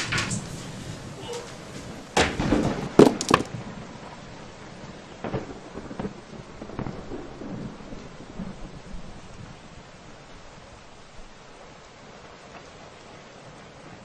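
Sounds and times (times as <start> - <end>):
loud thuds: 0.0 - 3.6
rustling: 0.0 - 3.6.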